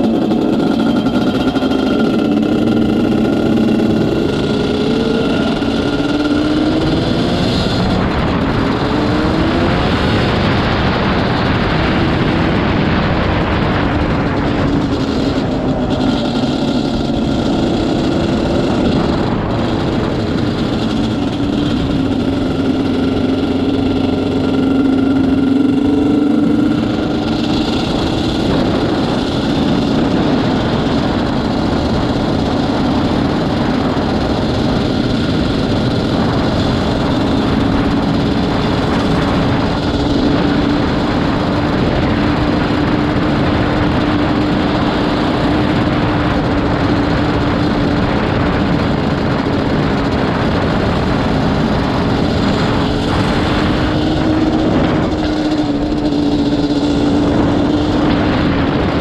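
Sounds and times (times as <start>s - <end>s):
quad bike two-stroke engine running: 0.0s - 59.0s.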